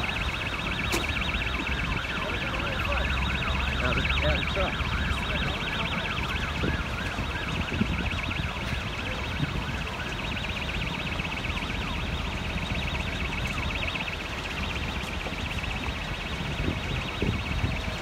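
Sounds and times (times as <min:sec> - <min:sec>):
fast-sweeping siren: 0:00.0 - 0:18.0
pulsing high-pitched alarm tone: 0:00.0 - 0:18.0.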